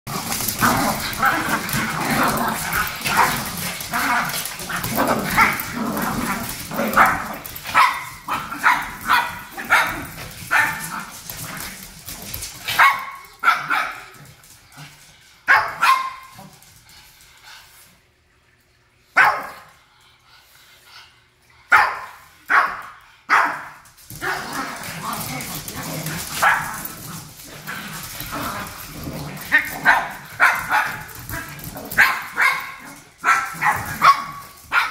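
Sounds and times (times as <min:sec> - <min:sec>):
dogs barking: 0:00.6 - 0:11.2, 0:15.5 - 0:16.4, 0:19.2 - 0:19.6, 0:21.7 - 0:24.6, 0:26.0 - 0:26.8, 0:29.4 - 0:34.9.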